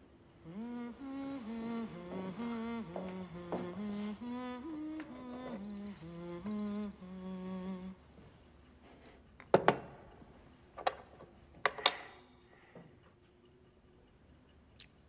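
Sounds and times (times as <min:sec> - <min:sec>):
person humming a tune: 0:00.0 - 0:09.2.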